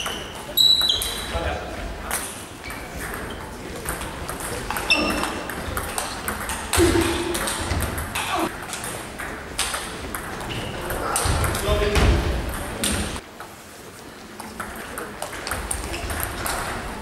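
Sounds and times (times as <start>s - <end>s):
table tennis balls clicking: 0.0s - 1.3s, 2.1s - 13.5s, 14.4s - 17.0s.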